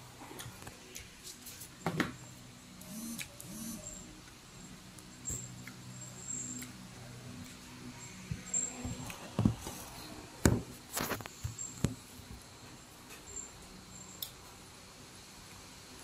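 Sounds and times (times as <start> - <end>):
people chewing: 0.2 - 1.7.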